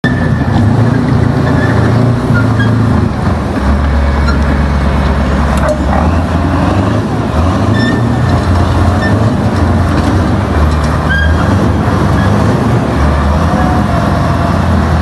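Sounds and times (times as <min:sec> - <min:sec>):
tank diesel engine running: 0:00.0 - 0:15.0
tank tracks rolling: 0:07.6 - 0:12.6
brief high squeaks: 0:11.1 - 0:11.5.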